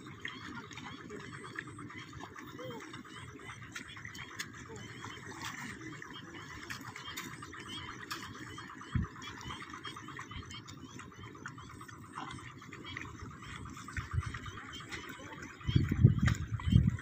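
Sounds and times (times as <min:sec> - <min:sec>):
frogs croaking: 0:00.0 - 0:17.0.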